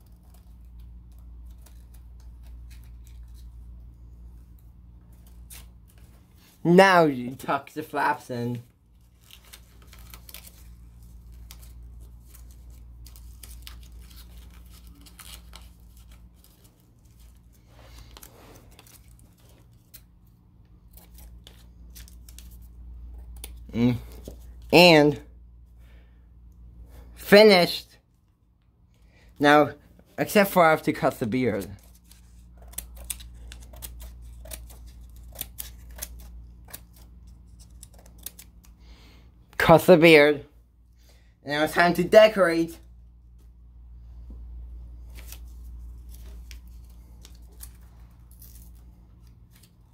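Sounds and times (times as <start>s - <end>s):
paper rustling and crinkling: 0.0s - 6.6s, 8.7s - 24.7s, 30.2s - 38.7s, 45.0s - 49.9s
steady low hum: 0.0s - 39.6s, 42.7s - 49.9s
scissors snipping paper: 31.4s - 38.7s.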